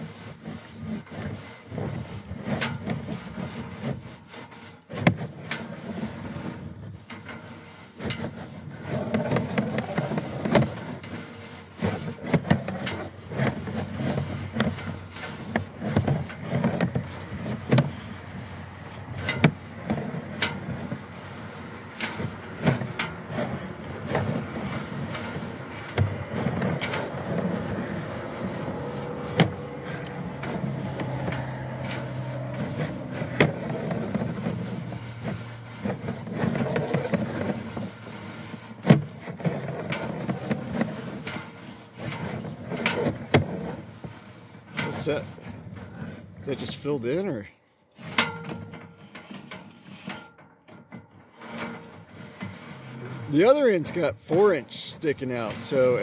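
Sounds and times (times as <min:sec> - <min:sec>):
cable clicking and rattling: 0:08.0 - 0:45.2
low steady hum: 0:13.4 - 0:38.9.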